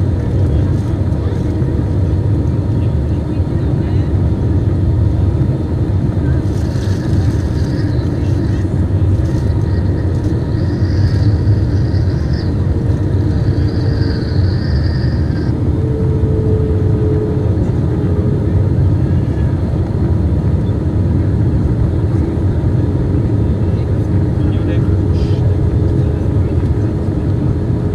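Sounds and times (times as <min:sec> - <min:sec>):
jet engines: 0:00.0 - 0:27.9
faint high whine: 0:06.2 - 0:19.5.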